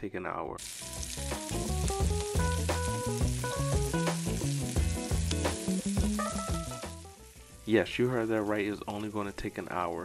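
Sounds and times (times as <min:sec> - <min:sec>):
meat sizzling in oil: 0:00.6 - 0:10.0
background music with bass line: 0:00.8 - 0:08.3.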